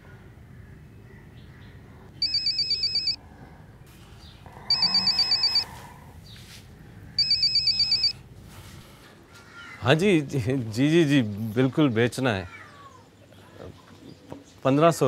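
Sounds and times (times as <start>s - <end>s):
mobile phone ringing: 2.2s - 3.2s, 4.7s - 5.7s, 7.2s - 8.2s.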